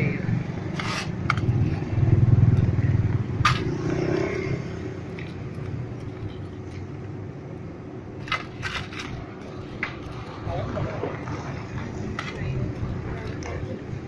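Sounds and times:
vehicle engine passing by: 0:00.0 - 0:05.6.

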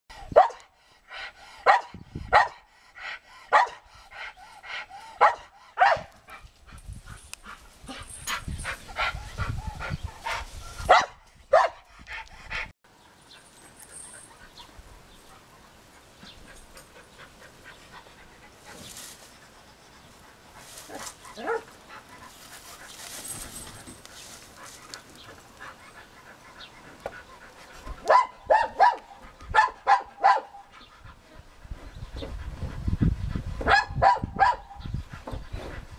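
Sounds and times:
dog barking: 0:00.3 - 0:00.6, 0:01.6 - 0:02.6, 0:03.5 - 0:03.8, 0:05.2 - 0:06.1, 0:10.9 - 0:11.8, 0:21.4 - 0:21.7, 0:28.0 - 0:30.7, 0:33.6 - 0:34.8.

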